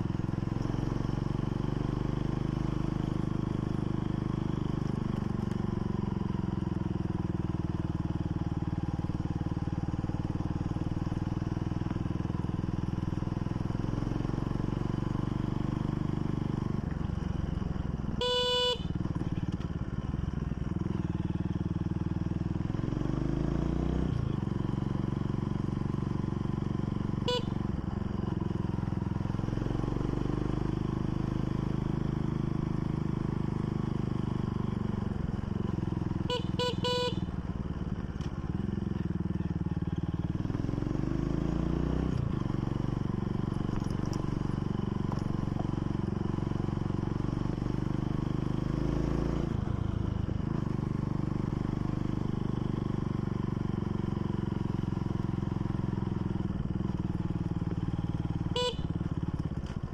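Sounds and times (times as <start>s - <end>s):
motorcycle engine running: 0.0s - 59.9s
short beeping tones: 18.2s - 18.9s.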